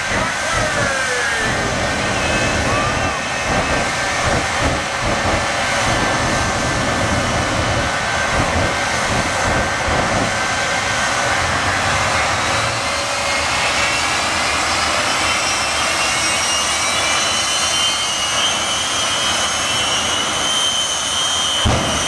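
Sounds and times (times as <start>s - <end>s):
jet engines roaring: 0.0s - 22.0s.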